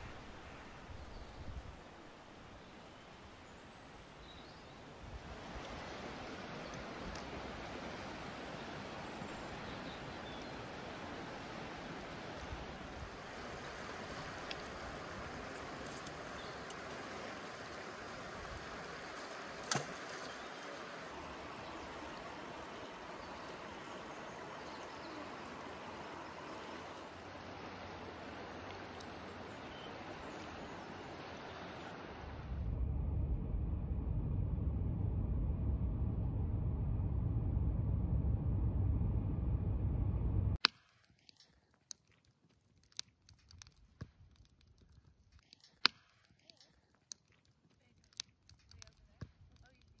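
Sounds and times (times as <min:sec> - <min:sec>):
river rushing: 0:10.6 - 0:32.4
deep low rumble: 0:32.3 - 0:40.6.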